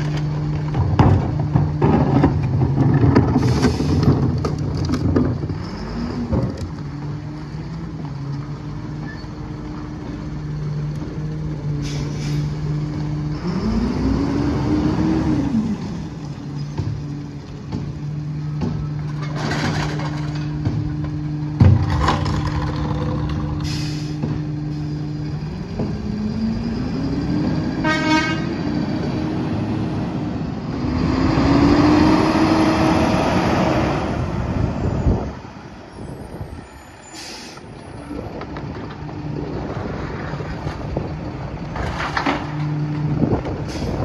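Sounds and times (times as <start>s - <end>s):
recyclables clattering into hopper: 19.1s - 20.6s.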